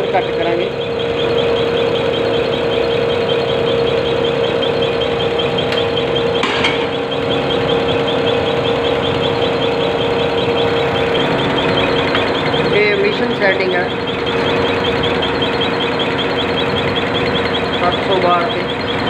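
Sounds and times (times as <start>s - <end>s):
injector ticking rapidly: 0.0s - 19.0s
motor and pump hum: 0.0s - 19.0s.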